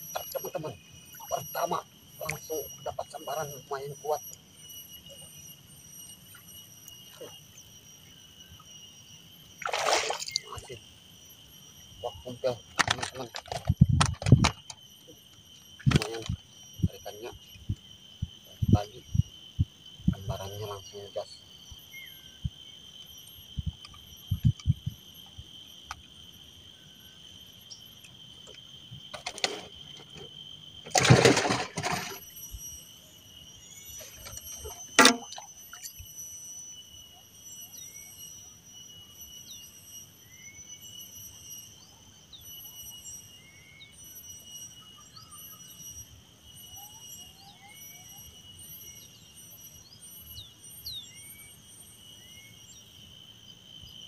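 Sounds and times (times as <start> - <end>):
high insect drone: 0.0 - 54.0
knocks in a wooden canoe: 34.9 - 35.4.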